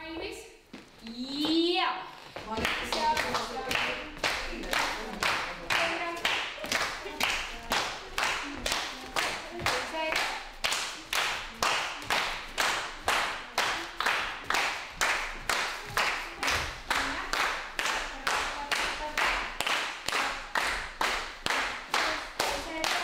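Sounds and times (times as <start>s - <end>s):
people clapping in rhythm: 2.4s - 23.0s.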